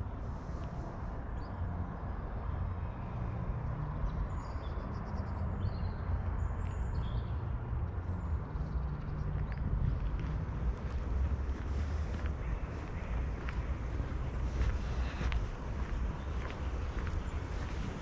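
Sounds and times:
low outdoor rumble: 0.0s - 18.0s.

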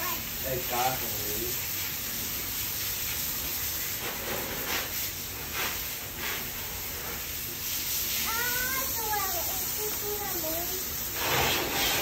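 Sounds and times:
hose water hissing onto tiles: 0.0s - 12.0s
sponge splashing in bucket: 11.1s - 12.0s.

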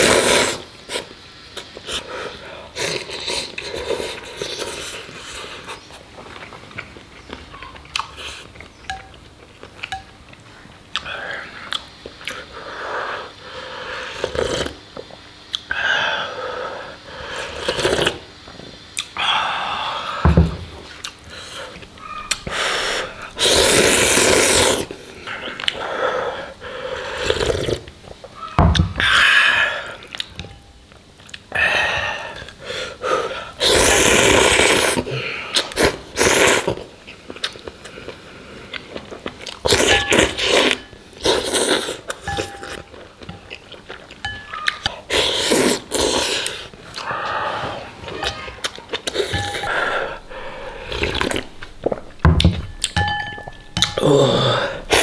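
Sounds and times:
slurping noodles: 0.0s - 1.1s, 13.9s - 14.8s, 17.4s - 18.2s, 22.4s - 25.0s, 26.9s - 27.9s, 33.6s - 36.9s, 39.6s - 42.2s, 45.1s - 47.9s
chewing: 2.8s - 12.5s, 35.5s - 47.4s, 48.1s - 55.0s.

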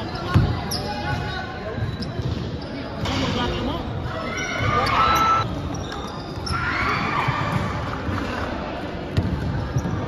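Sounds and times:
sneakers squeaking: 0.0s - 10.0s.

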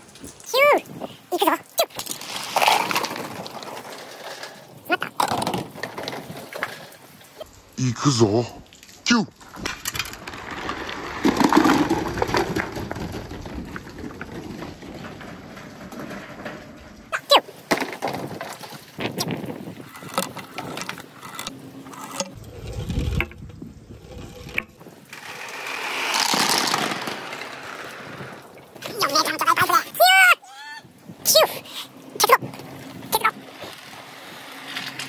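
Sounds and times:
balls clacking in a gutter: 1.6s - 7.6s, 9.4s - 29.9s.

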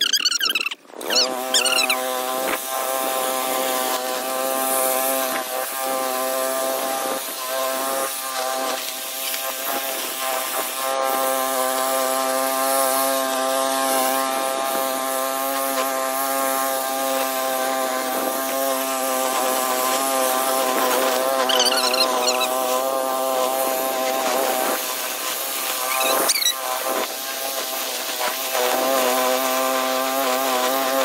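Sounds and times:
lawn mower engine running: 10.8s - 31.0s.

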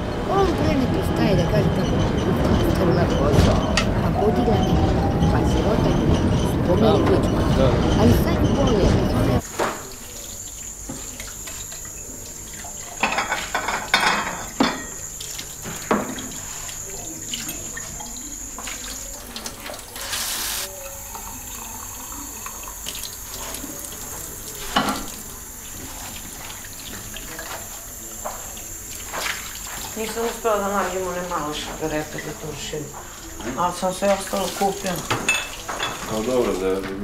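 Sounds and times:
tap water running: 0.0s - 37.0s
dishes clattering: 12.6s - 16.5s, 24.7s - 25.1s, 33.5s - 36.5s.

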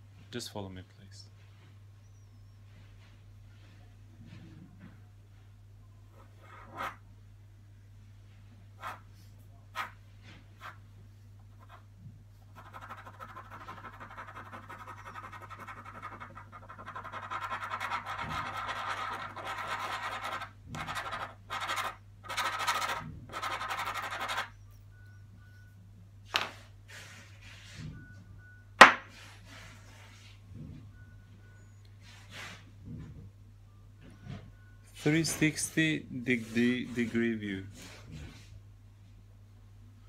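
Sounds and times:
pen scribbling on paper: 12.5s - 24.5s.

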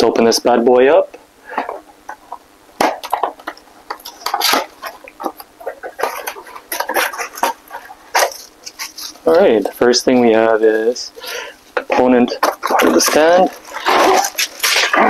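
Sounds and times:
cardboard box rustling: 2.8s - 10.4s, 12.4s - 15.0s.

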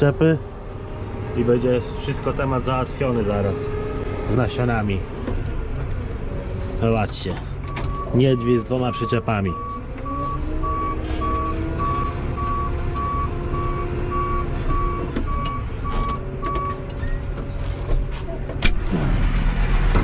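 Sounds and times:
reversing alarm beeping: 7.7s - 16.8s.

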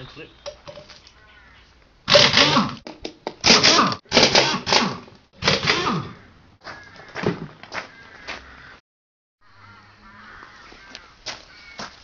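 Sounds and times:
pneumatic impact wrench hammering: 2.1s - 6.1s.

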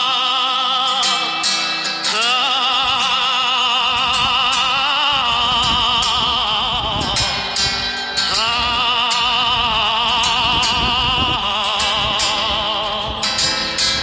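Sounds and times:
person singing with vibrato: 0.0s - 14.0s.

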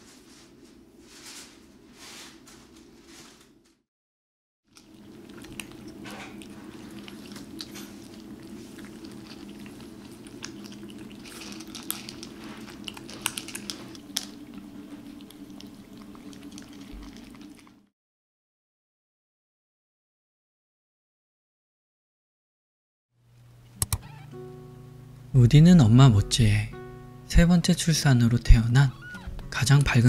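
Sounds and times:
kittens chewing: 4.7s - 17.9s
steady low hum: 4.8s - 17.7s.

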